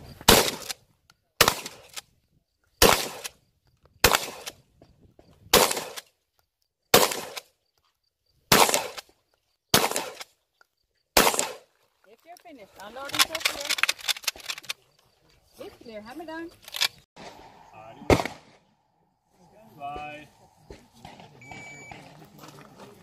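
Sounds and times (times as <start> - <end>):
shotgun shots echoing: 0.2 - 0.7, 1.4 - 2.0, 2.8 - 3.3, 4.0 - 4.6, 5.5 - 6.1, 6.9 - 7.5, 8.5 - 9.1, 9.7 - 10.3, 11.2 - 11.7, 17.2 - 18.8.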